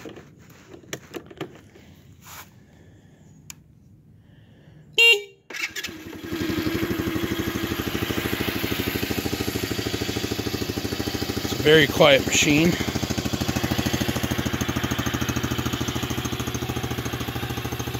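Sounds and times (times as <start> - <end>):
short horn beep: 5.0 - 5.5
atv engine starting and idling: 5.5 - 17.9.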